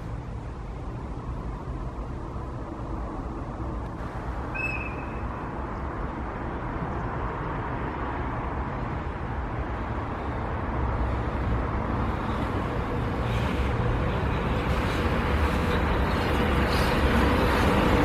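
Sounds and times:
train rumble with faint whine: 0.0s - 18.0s
wheel-on-rail noise: 0.0s - 18.0s
short high chirp: 4.5s - 5.4s.

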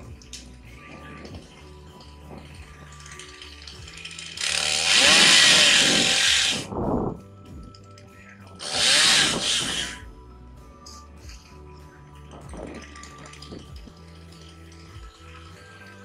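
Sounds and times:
chainsaw running: 4.2s - 6.7s, 8.6s - 10.0s.

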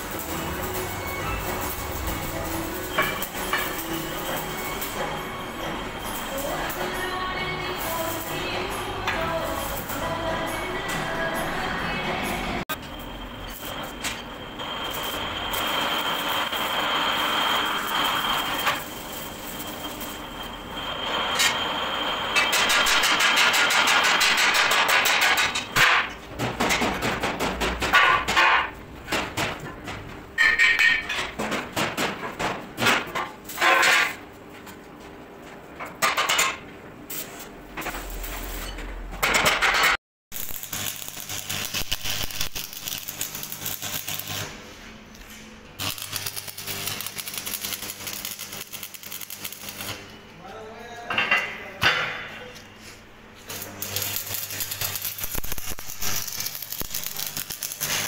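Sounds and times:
arc welding crackle: 0.0s - 5.3s, 6.0s - 10.3s, 12.9s - 25.9s, 37.1s - 38.6s, 40.3s - 44.6s, 45.8s - 50.1s, 53.4s - 58.0s
plate-rolling machine bending steel: 0.0s - 11.2s, 12.7s - 26.2s.

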